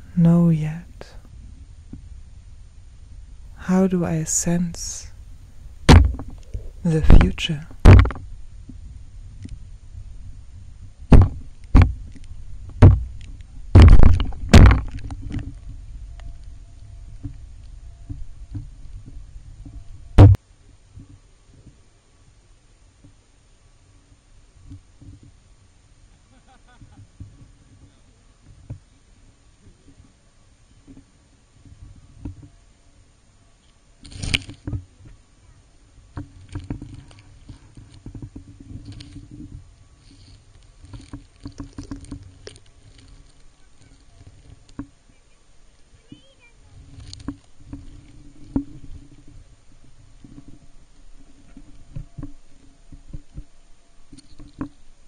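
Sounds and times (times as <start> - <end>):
low rumble: 0.0 - 20.4
water sloshing against camera: 3.5 - 8.3
knocks and thumps against camera: 5.7 - 8.3, 11.1 - 12.0, 12.7 - 13.1, 13.7 - 15.5, 20.2 - 20.4.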